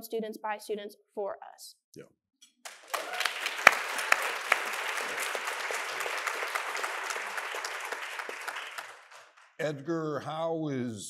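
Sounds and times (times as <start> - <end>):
sharp loud claps: 2.6 - 9.6
audience applauding: 2.6 - 9.7.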